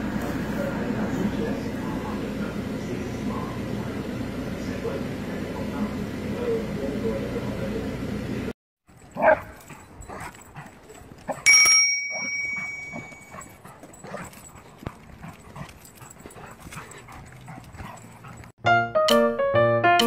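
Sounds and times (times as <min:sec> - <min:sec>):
sharp ringing ding: 0:11.5 - 0:13.4.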